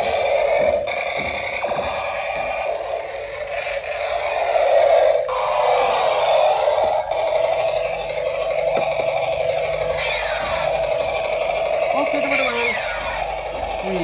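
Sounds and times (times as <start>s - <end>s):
tinny electronic sound effects: 0.0s - 14.0s
toy motor and rotor whir: 0.0s - 14.0s.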